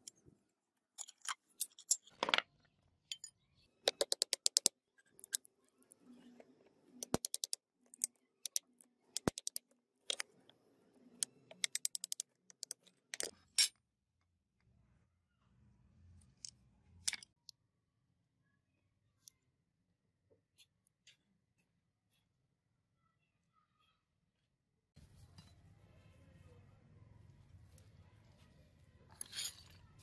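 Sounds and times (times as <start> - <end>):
hammer tapping screwdriver: 7.0 - 7.6, 9.2 - 9.6, 11.6 - 12.8.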